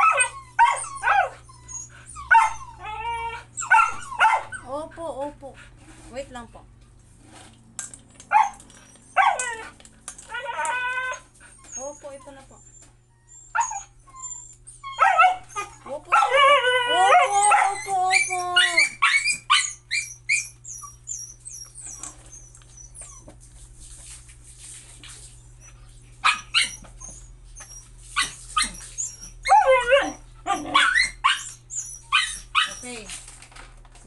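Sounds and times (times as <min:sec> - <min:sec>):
puppy yipping and barking: 0:00.0 - 0:03.0, 0:03.6 - 0:04.6, 0:08.3 - 0:09.7, 0:13.4 - 0:16.4, 0:17.0 - 0:23.3, 0:26.2 - 0:33.0
puppy whining and howling: 0:00.0 - 0:04.7, 0:08.3 - 0:23.3, 0:25.6 - 0:33.1.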